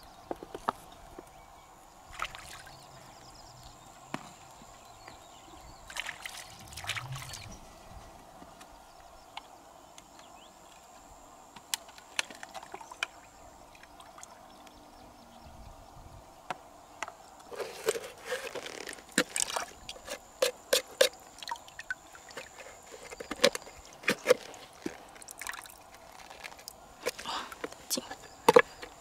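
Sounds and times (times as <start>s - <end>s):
water trickling: 18.5s - 28.8s.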